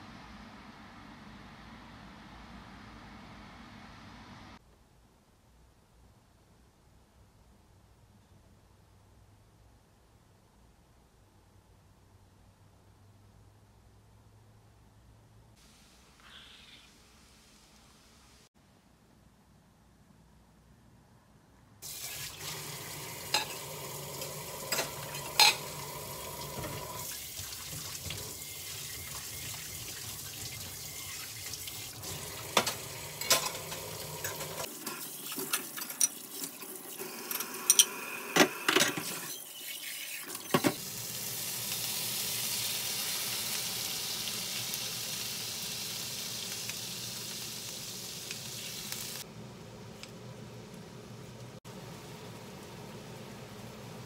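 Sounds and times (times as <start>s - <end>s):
tap water running: 21.8s - 49.2s
dishes clinking: 23.3s - 23.8s, 24.6s - 25.8s, 32.5s - 36.6s, 37.3s - 39.2s.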